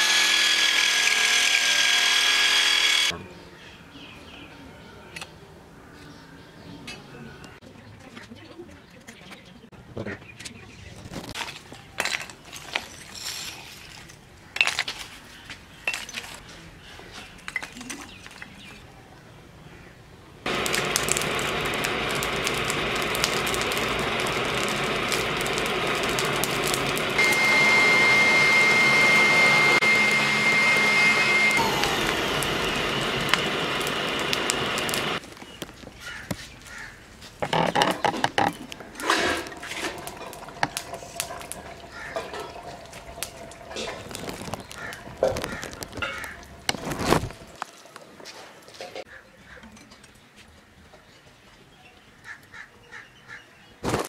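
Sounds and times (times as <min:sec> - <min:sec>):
electric air blower running: 0:00.0 - 0:03.1, 0:20.5 - 0:35.2
charcoal and metal clinking: 0:11.2 - 0:15.1, 0:15.8 - 0:16.4, 0:20.5 - 0:35.8, 0:37.4 - 0:48.0
thin high whine: 0:20.5 - 0:35.2.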